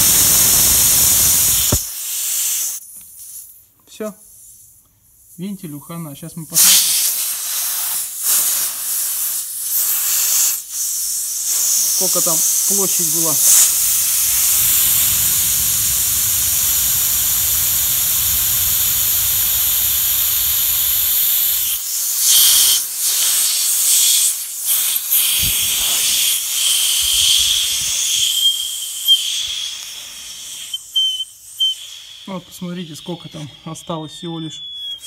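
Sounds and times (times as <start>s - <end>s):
air hissing from tyre valve: 0.0s - 3.7s, 6.6s - 33.4s
thin whistle: 21.6s - 22.9s, 25.2s - 35.0s.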